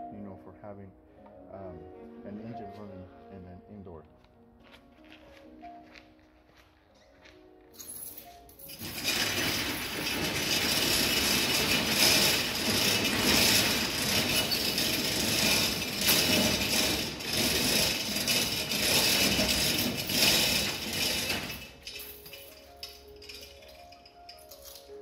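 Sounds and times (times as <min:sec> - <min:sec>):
roll-up door rattling: 0:08.6 - 0:25.0.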